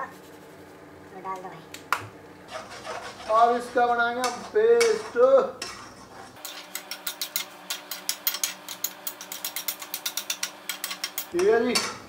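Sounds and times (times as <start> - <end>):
metal spoon scraping a pan: 2.5 - 12.0.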